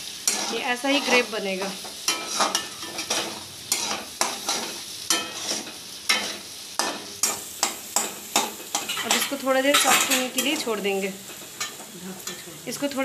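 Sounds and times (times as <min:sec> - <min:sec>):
spatula scraping pan: 0:00.0 - 0:12.5
food sizzling: 0:00.0 - 0:13.0.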